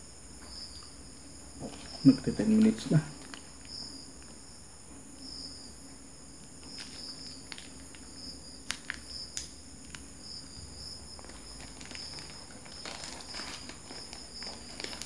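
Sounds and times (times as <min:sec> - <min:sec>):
faint insect chirping: 0:00.0 - 0:15.0
paper crinkling: 0:01.6 - 0:03.7, 0:06.6 - 0:09.1, 0:11.2 - 0:15.0.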